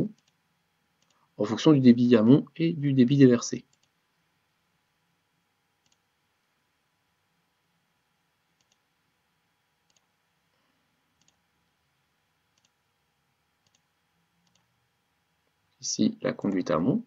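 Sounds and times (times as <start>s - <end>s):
computer mouse clicks: 0.1s - 0.4s, 1.0s - 1.2s, 3.7s - 4.0s, 5.8s - 6.1s, 8.6s - 8.9s, 9.8s - 10.1s, 11.2s - 11.4s, 12.5s - 12.8s, 13.6s - 14.7s.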